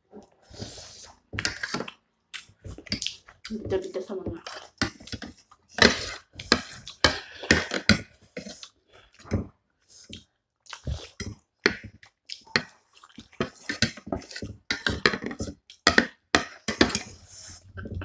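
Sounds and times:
wet chewing: 9.9 - 15.8.

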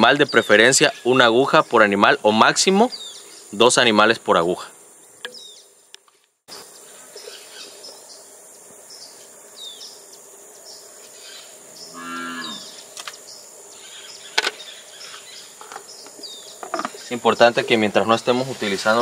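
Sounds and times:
high insect hum: 0.0 - 19.0
cow mooing: 11.9 - 12.7.

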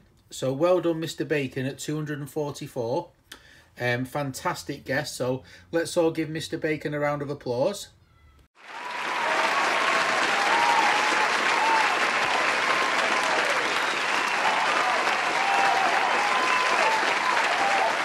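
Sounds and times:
crowd clapping: 8.6 - 18.0
voices cheering: 8.6 - 18.0.

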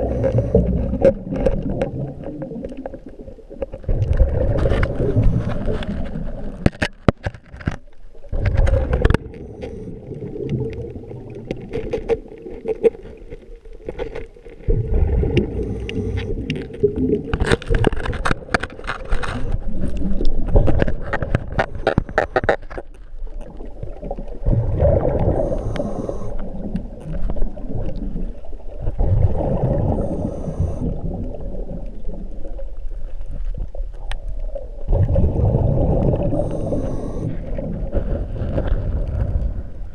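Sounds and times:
underwater rumble and bubbling: 0.0 - 39.9
sharp underwater clicks and knocks: 0.2 - 23.7.

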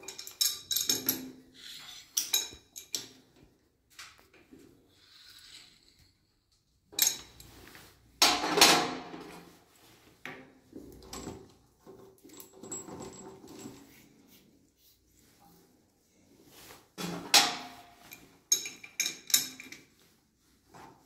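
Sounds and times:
metal fittings clinking and rattling: 0.0 - 3.2, 4.9 - 7.8, 17.9 - 20.0.

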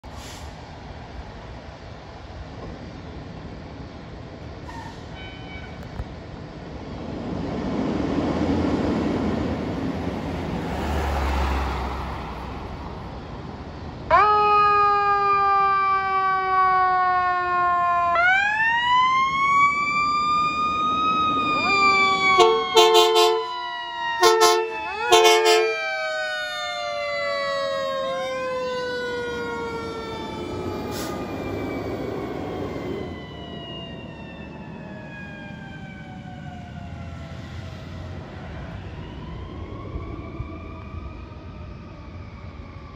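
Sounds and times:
diesel engines rumbling: 0.0 - 42.9
sirens wailing: 7.0 - 42.9
air horn blasts: 22.3 - 23.6, 24.2 - 25.8.

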